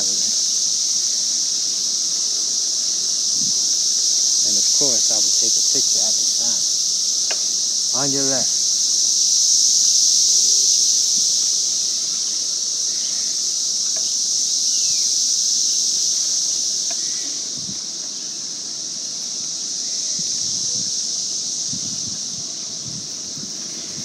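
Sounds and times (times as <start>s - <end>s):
high-pitched insect chorus: 0.0s - 24.0s
wind gusts on microphone: 3.3s - 6.8s, 17.4s - 18.0s, 20.0s - 24.0s.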